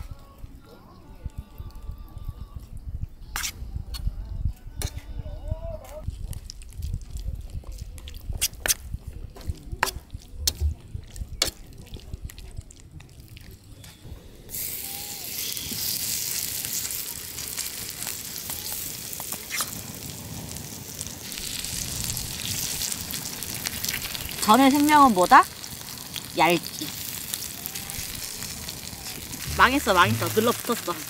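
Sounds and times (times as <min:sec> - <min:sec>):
batter sizzling in oiled pan: 0:14.5 - 0:31.0.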